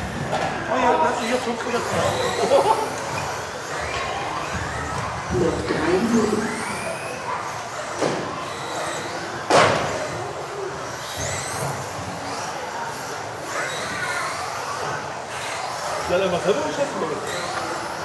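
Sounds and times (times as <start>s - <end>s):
electric motors whining: 0.0s - 18.0s.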